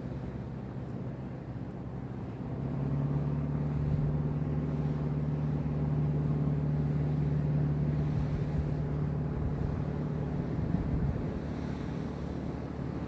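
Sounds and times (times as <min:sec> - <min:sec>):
engine droning: 0:00.0 - 0:13.0.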